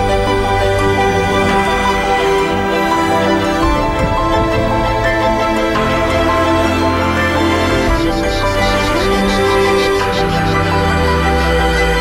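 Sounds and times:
music of sustained chords: 0.0s - 12.0s.

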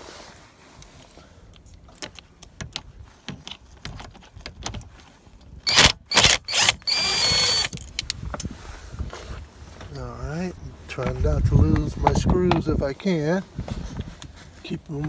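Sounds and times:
clicks and rattles of screw: 1.5s - 5.5s
power driver motor whining: 5.7s - 7.8s.

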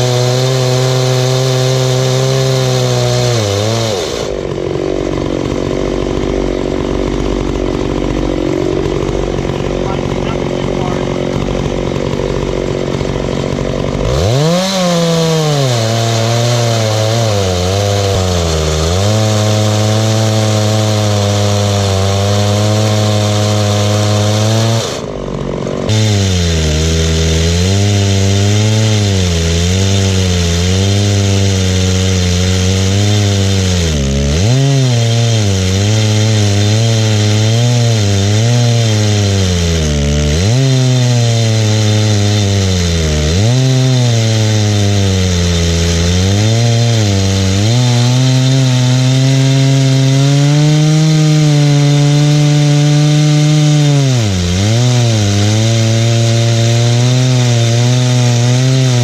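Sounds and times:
chainsaw cutting log: 0.0s - 59.0s.

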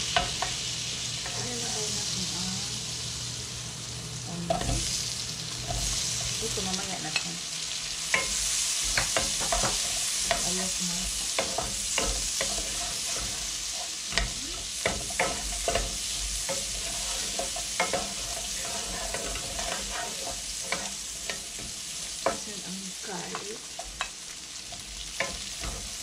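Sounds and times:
onion sizzling in hot oil: 0.0s - 26.0s
spatula tapping against pan: 22.2s - 22.4s.

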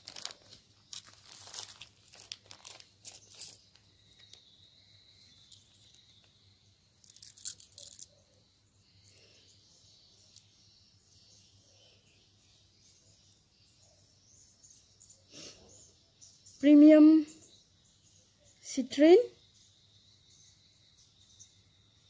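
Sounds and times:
plastic bag crinkling: 0.0s - 4.3s.

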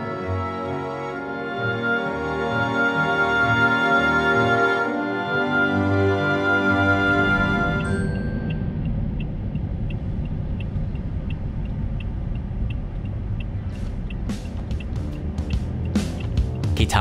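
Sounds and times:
turn signal ticking: 7.8s - 16.8s.

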